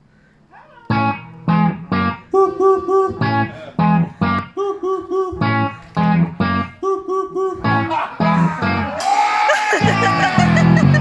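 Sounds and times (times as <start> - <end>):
guitar chords and riff: 0.9 - 4.6, 5.3 - 6.8, 7.6 - 9.0, 9.9 - 11.0.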